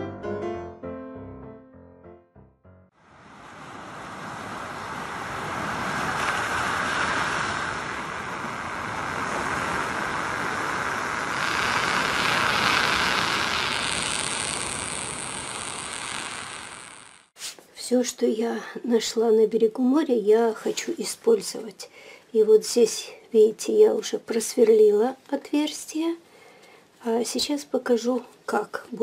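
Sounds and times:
surf washing onto beach: 3.0s - 17.2s.

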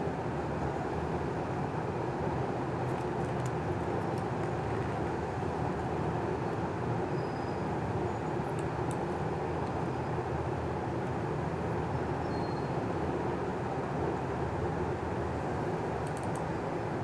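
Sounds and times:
faint high clicks: 16.0s - 16.5s.

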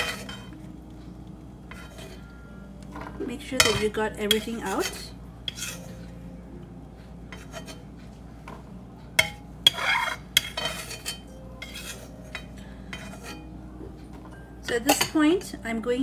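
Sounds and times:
spoon scraping metal wok: 0.0s - 0.5s, 1.7s - 2.2s, 3.6s - 6.0s, 7.3s - 7.8s, 9.2s - 13.5s.

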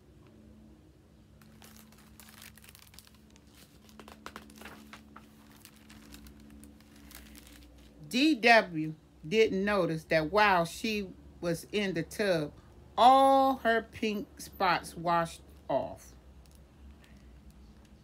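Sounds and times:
paper page rustling: 1.4s - 8.0s.

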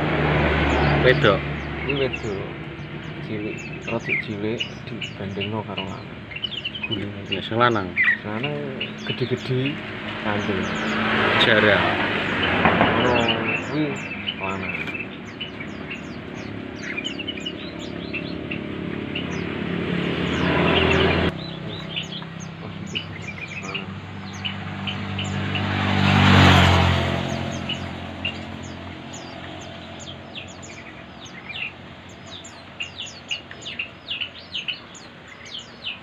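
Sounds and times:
motor vehicles passing: 0.0s - 36.0s
small birds chirping: 0.0s - 36.0s.

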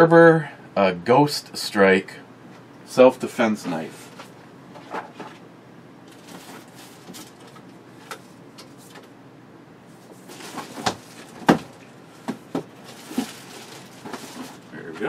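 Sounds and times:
rustling in cardboard box: 6.1s - 7.5s, 10.0s - 11.8s, 12.4s - 14.7s.

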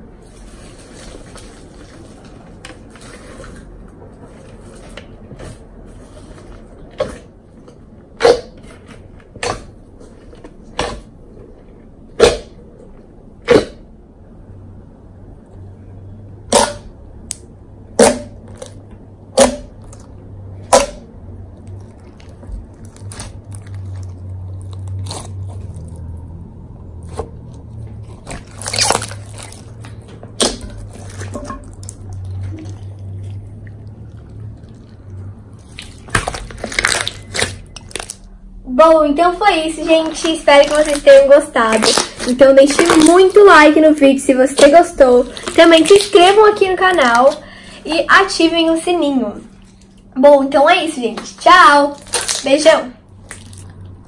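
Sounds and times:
sticky slime crackles: 19.4s - 38.4s, 39.6s - 47.4s, 51.7s - 53.9s.

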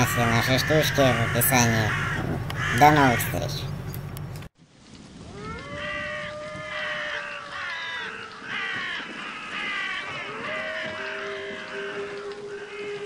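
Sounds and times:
crows cawing: 0.0s - 3.7s, 5.4s - 13.0s.

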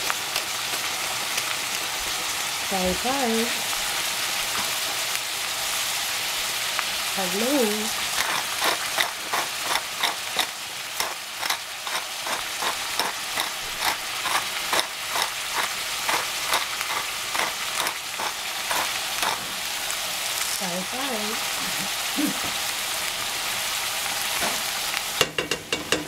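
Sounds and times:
vegetables sizzling in a saucepan: 0.0s - 26.0s
spice mill grinding clicks: 8.0s - 19.4s.

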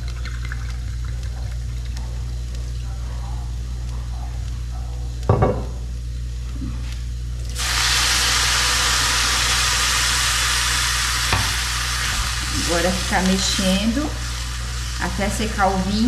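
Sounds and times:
wine sizzling in a hot pan: 0.0s - 2.8s, 7.4s - 16.0s
steady low hum: 0.0s - 16.0s.

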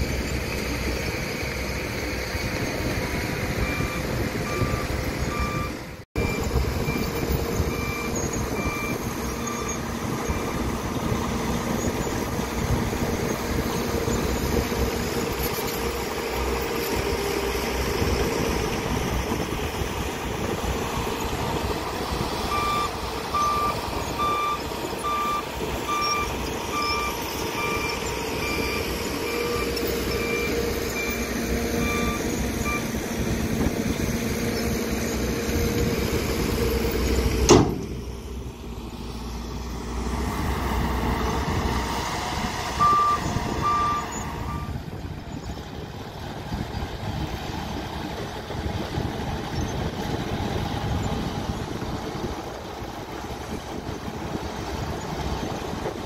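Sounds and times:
diesel truck engine running: 0.0s - 56.0s
reversing alarm beeping: 3.6s - 11.1s, 22.5s - 33.0s, 42.6s - 44.8s.

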